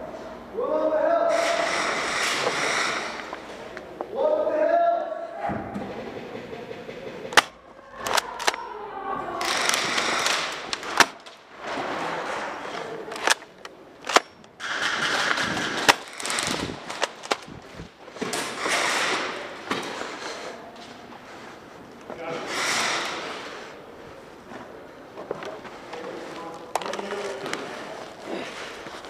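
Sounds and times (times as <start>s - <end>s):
background noise: 0.0s - 29.0s.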